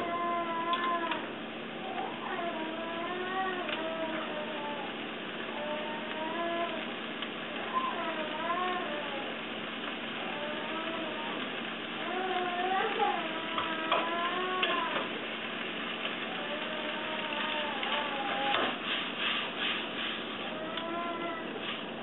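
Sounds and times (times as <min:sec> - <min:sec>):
spatula scraping frying pan: 0:16.8 - 0:20.6.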